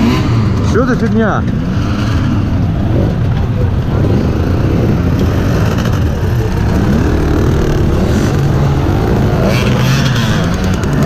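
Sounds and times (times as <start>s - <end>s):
dirt bike engines revving: 0.0s - 11.0s.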